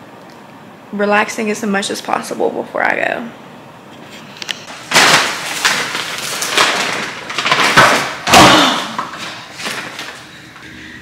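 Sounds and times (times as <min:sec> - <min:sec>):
rustling handling noises: 0:03.9 - 0:08.1, 0:09.0 - 0:10.6.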